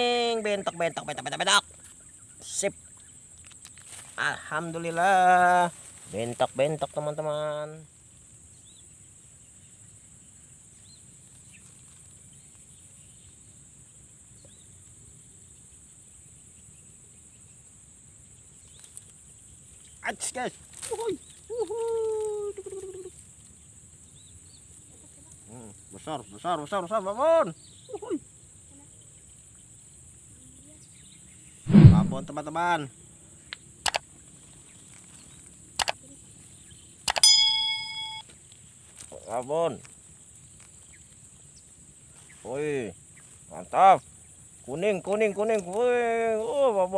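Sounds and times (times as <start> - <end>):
high insect drone: 0.0 - 31.6, 32.3 - 46.9
short bird chirp: 31.7 - 32.3
high-pitched insect drone: 35.8 - 38.4
bell ding: 37.1 - 38.3.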